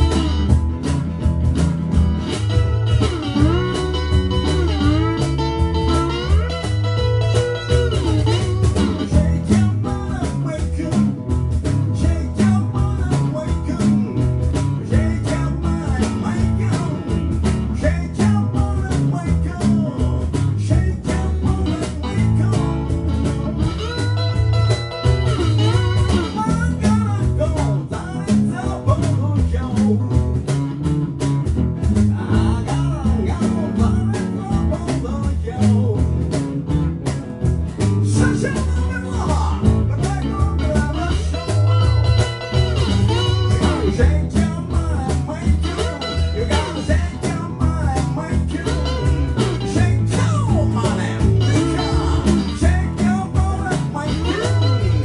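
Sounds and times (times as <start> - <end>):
harmonica lead lines: 0.0 - 9.4, 21.6 - 27.2, 40.6 - 44.5, 45.3 - 53.2, 54.0 - 55.0
blues band playing: 0.0 - 55.0.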